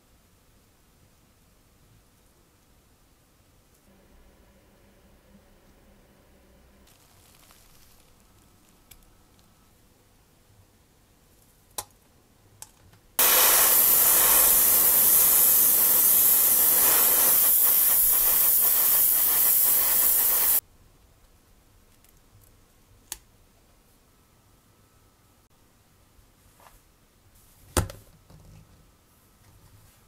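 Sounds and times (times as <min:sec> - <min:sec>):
pressurized spray hissing: 0:13.2 - 0:20.6.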